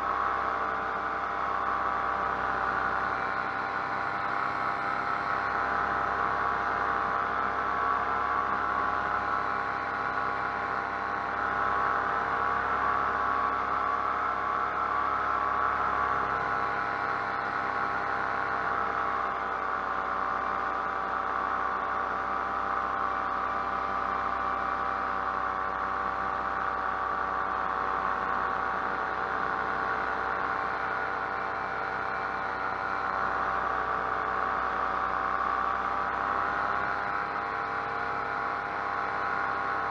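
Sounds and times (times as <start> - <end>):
paramotor engine running: 0.0 - 39.9.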